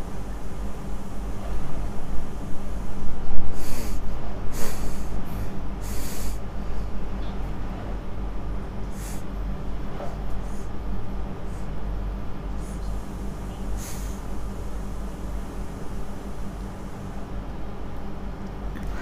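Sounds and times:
low hum: 0:00.0 - 0:19.0
person snorting and sniffing: 0:03.6 - 0:04.0.

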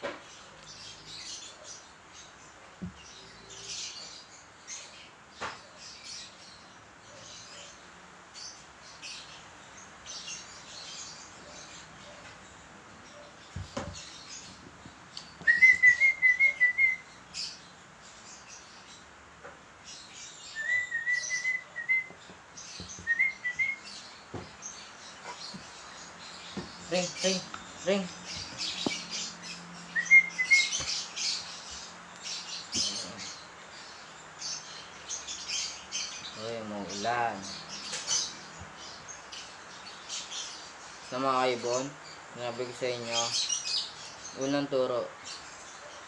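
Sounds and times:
lovebird chirping: 0:00.1 - 0:19.1, 0:19.8 - 0:46.0
soft knocks: 0:13.6 - 0:14.0, 0:24.3 - 0:24.6, 0:26.5 - 0:26.8.

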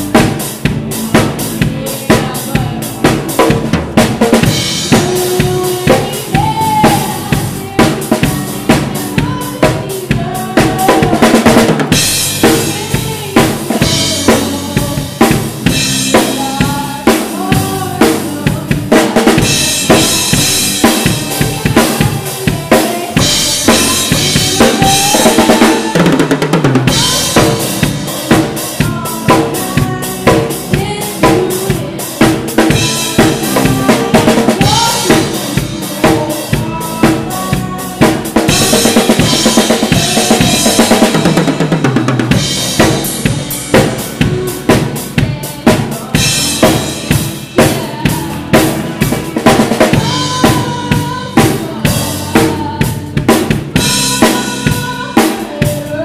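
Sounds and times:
drum beat: 0:00.0 - 0:56.0
live rock band: 0:00.0 - 0:56.0.

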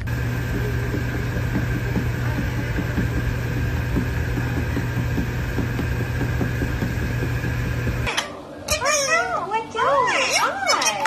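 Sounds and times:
electric fan humming: 0:00.0 - 0:08.6.

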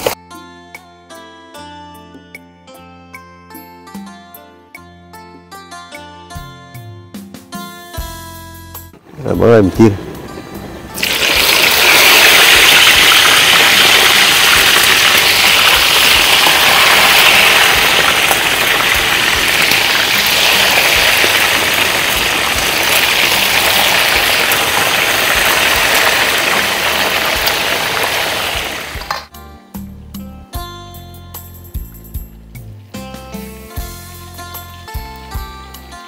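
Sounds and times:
chicken deep-frying in oil: 0:11.0 - 0:29.3.

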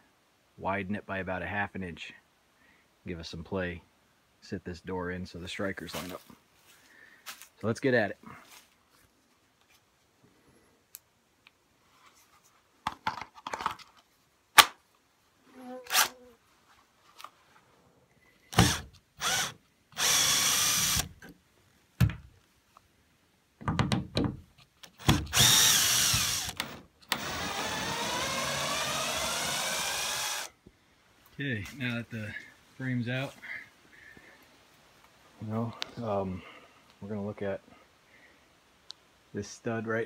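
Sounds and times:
power drill motor: 0:18.6 - 0:21.2, 0:25.0 - 0:30.5.

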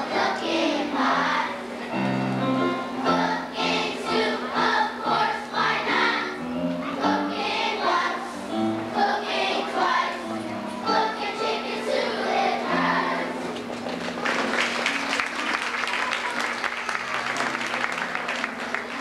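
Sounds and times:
children's choir singing: 0:00.0 - 0:13.6
upright piano: 0:00.0 - 0:15.4.

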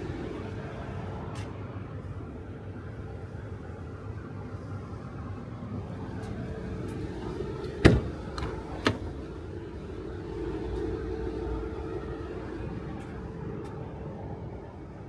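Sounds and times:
car door clunk: 0:07.6 - 0:09.2.

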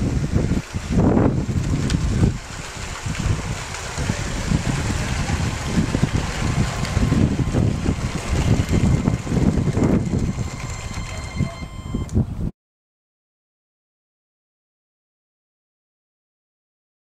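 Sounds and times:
wind buffeting microphone: 0:00.0 - 0:12.5
thin motor whine: 0:04.3 - 0:12.2.

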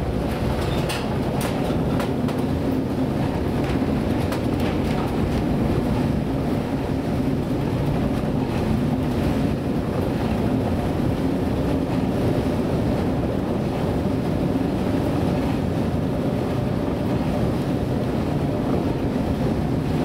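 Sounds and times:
boat engine rumble: 0:00.0 - 0:20.0
heavy seas: 0:00.0 - 0:20.0
storm wind: 0:00.0 - 0:20.0.

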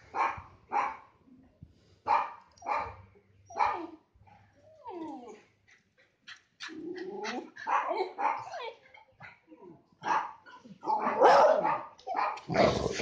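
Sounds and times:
dogs barking: 0:06.7 - 0:08.6, 0:10.0 - 0:13.0.

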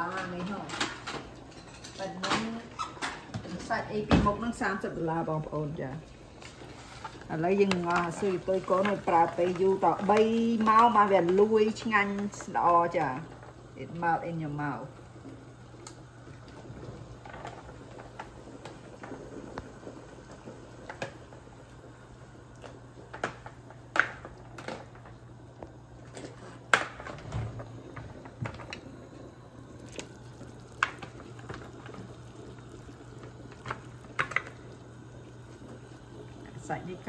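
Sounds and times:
steady low hum: 0:00.0 - 0:37.0
water boiling in a pot: 0:00.0 - 0:37.0.

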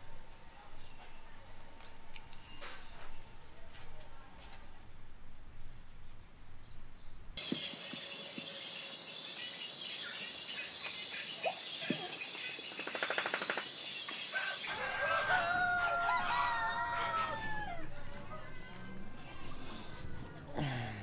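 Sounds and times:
night insects chorus: 0:04.6 - 0:17.8
roosters crowing: 0:14.2 - 0:18.4.

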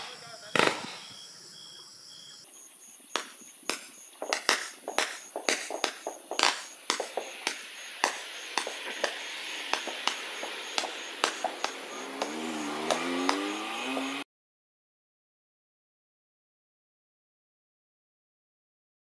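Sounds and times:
hiss of burning fireworks: 0:00.0 - 0:01.2, 0:02.5 - 0:14.2
firework shots: 0:00.0 - 0:01.4, 0:03.0 - 0:14.2.

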